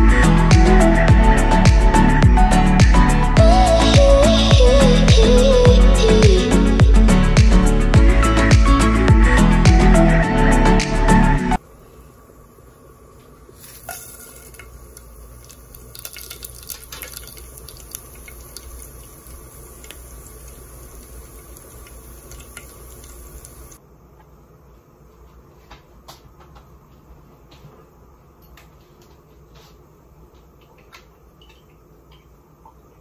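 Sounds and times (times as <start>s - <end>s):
spices sizzling in hot oil: 13.6s - 23.8s.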